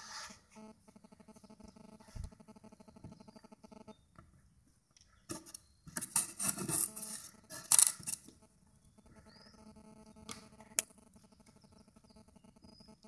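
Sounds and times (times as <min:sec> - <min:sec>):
floor panel crackling and creaking: 0:05.2 - 0:13.0
short clicks: 0:10.1 - 0:11.6.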